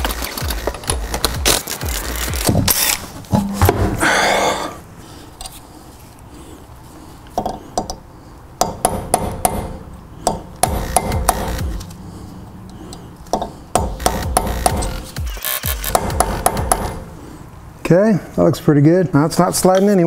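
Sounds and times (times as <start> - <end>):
hammer tapping metal punch: 8.6 - 11.8, 13.3 - 15.0.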